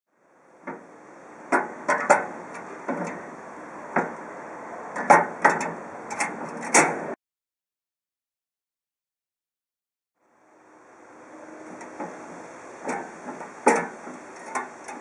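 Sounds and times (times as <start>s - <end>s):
spray cans clanking in metal holders: 12.8s - 15.0s.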